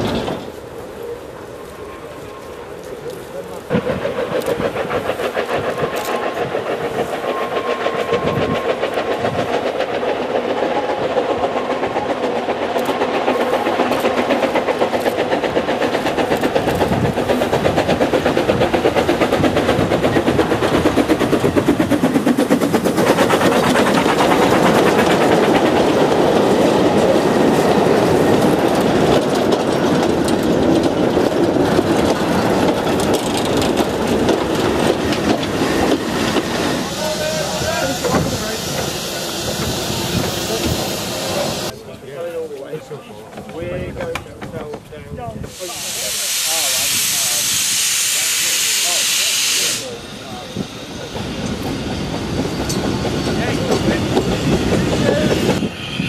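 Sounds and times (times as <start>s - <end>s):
wagons rattling past: 0.0s - 0.8s, 2.0s - 45.0s
steam locomotive exhaust beats: 0.0s - 41.8s, 43.2s - 56.0s.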